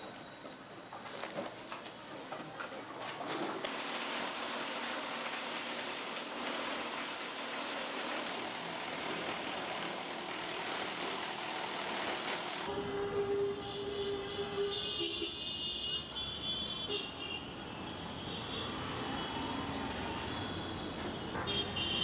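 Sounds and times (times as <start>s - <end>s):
plastic grinding machine running: 3.6s - 12.7s
street traffic: 8.2s - 22.0s
vehicle horn: 12.7s - 17.4s.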